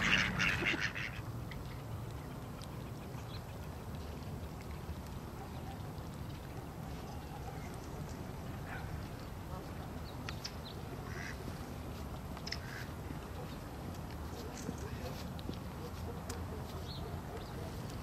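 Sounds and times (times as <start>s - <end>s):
ducks quacking: 0.0s - 1.3s, 11.0s - 11.5s, 12.6s - 13.0s.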